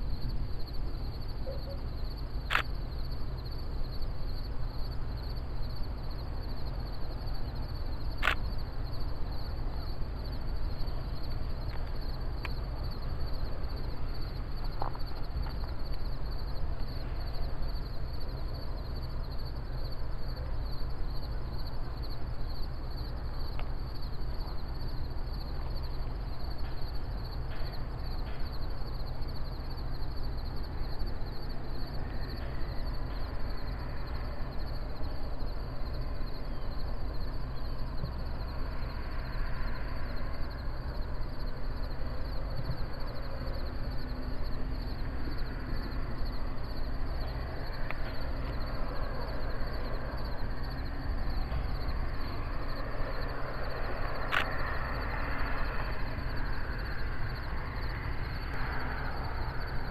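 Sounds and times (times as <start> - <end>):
high pulsing insect trill: 0.0 - 59.9
sharp click: 2.5 - 2.7, 8.2 - 8.4.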